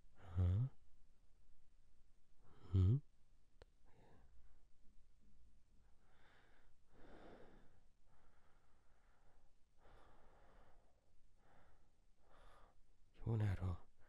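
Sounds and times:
person breathing faintly: 3.8 - 4.6, 5.8 - 12.9.

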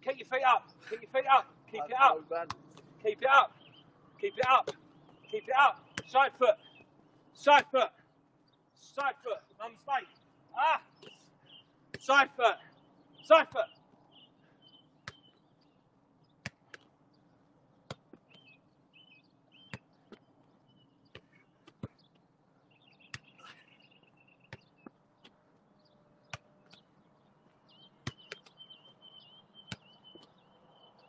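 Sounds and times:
football kicked with sharp tap: 5.9 - 6.2, 15.0 - 15.3, 24.5 - 24.7, 29.7 - 30.3.

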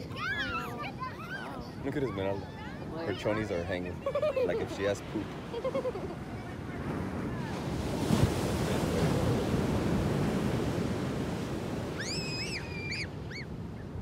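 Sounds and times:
ocean wave breaking on beach: 4.5 - 13.1.

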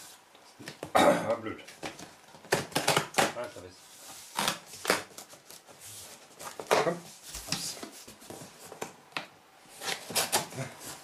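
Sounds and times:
cardboard cracking: 1.8 - 3.3.

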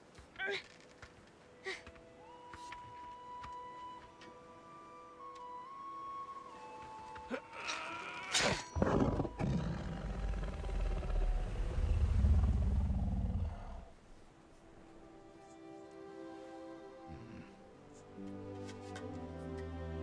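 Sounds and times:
deep rumbling growl: 8.8 - 14.0.

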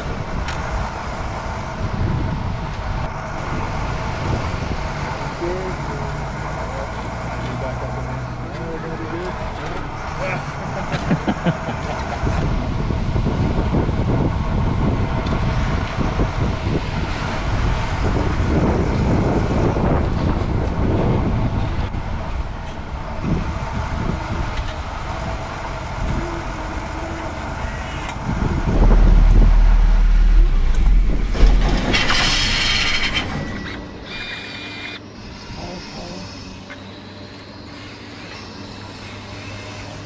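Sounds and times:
low rumble on microphone: 28.2 - 33.6
toy truck motor whirring: 33.5 - 40.0.

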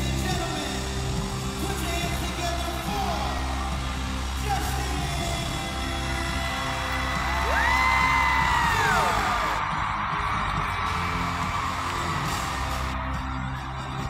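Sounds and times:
fans screaming: 0.0 - 14.0
loud concert music: 0.0 - 14.0.

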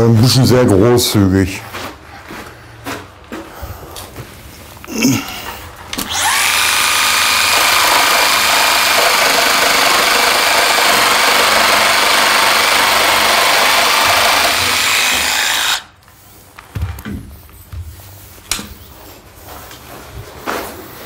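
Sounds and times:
cordless power tool running: 6.0 - 15.9.

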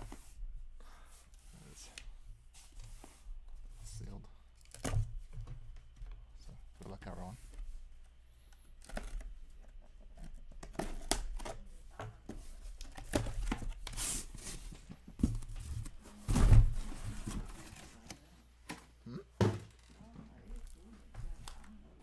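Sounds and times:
cardboard rustling and scraping: 12.2 - 18.9
boxes set down thud: 16.2 - 17.6.

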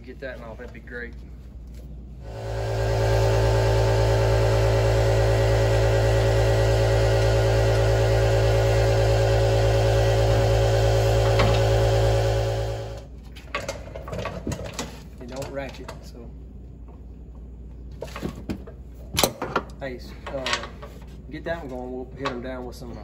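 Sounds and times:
motor humming: 2.2 - 13.1.

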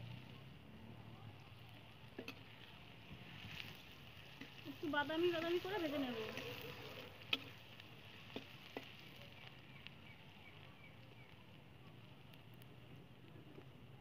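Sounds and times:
onions sizzling in oil: 0.0 - 13.2.

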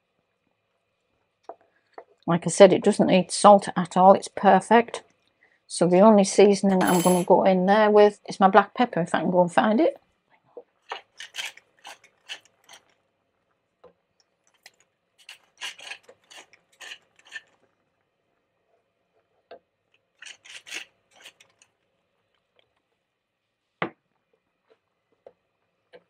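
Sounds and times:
pepper mill grinding: 10.8 - 13.0, 14.5 - 17.6, 20.2 - 21.7.

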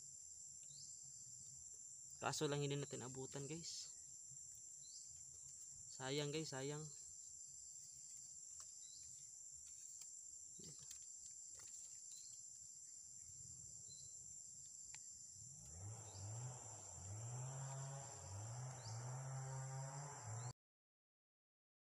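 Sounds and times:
insects droning: 0.0 - 20.5.

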